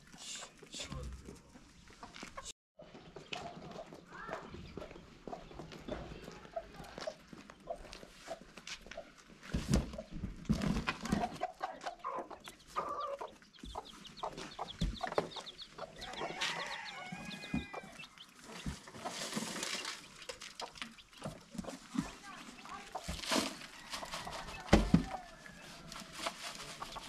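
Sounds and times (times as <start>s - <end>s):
chickens clucking: 0.0s - 27.0s
knocks and rustling: 9.4s - 11.4s, 17.4s - 25.3s.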